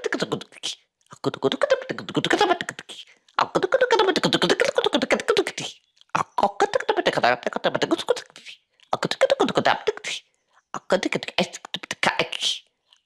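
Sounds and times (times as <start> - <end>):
man making clicking chattering syllables: 0.0 - 10.2.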